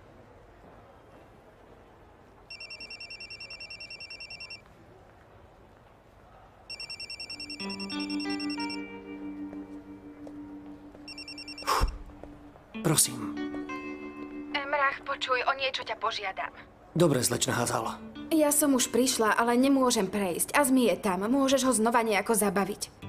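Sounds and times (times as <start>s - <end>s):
mobile phone ringing trill: 2.5s - 4.6s, 6.7s - 9.0s, 11.1s - 11.9s
soft background music: 7.0s - 23.0s.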